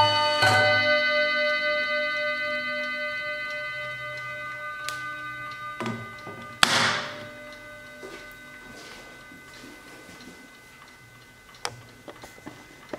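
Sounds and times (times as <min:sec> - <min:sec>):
clock chime ringing: 0:00.0 - 0:12.8
clock ticking: 0:10.2 - 0:12.9.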